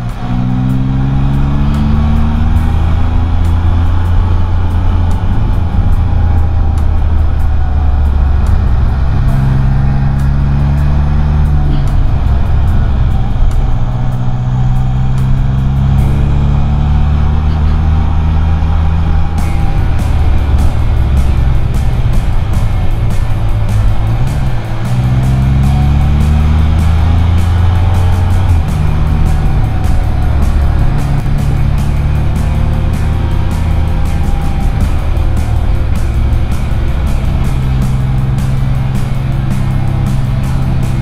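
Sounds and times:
three-wheeler engine accelerating: 0:00.0 - 0:41.0.

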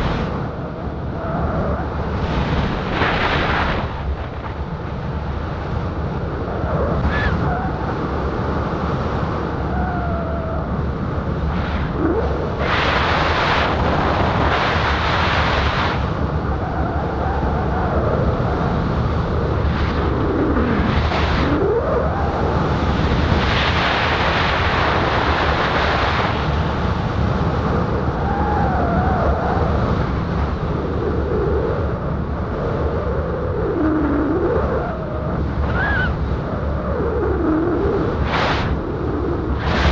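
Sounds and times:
wind rushing over microphone: 0:00.0 - 0:39.9
faint wavering whistles: 0:35.6 - 0:36.2.

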